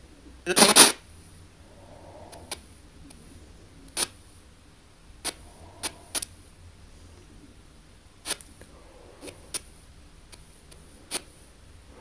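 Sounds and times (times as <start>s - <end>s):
radio static hiss: 0.0s - 7.5s, 8.1s - 12.0s
sharp bursts of radio sound: 0.5s - 1.0s.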